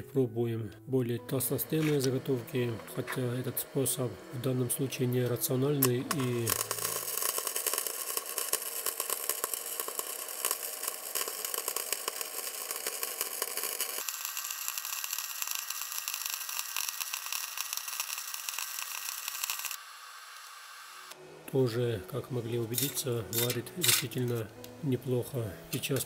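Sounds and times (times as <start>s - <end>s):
welding arc crackling hiss: 1.6s - 21.2s.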